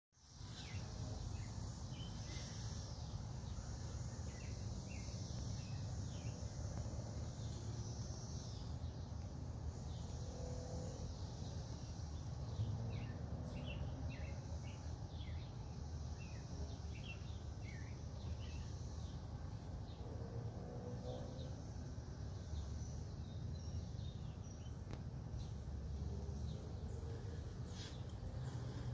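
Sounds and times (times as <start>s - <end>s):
high hiss: 0.2s - 12.3s, 25.9s - 28.9s
small birds chirping: 0.2s - 20.2s, 21.1s - 28.9s.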